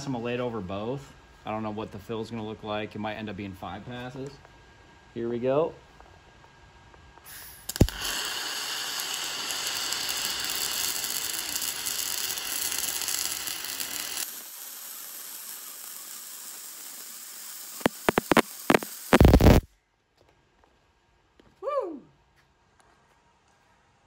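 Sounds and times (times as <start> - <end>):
sharp loud welding pops: 7.2 - 19.7
welding arc crackling hiss: 7.2 - 19.7.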